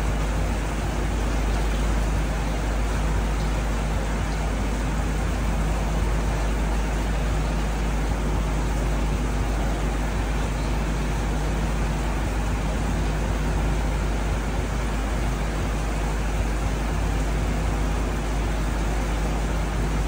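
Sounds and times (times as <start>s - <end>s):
constant hiss: 0.0s - 20.0s
low hum: 0.0s - 20.0s.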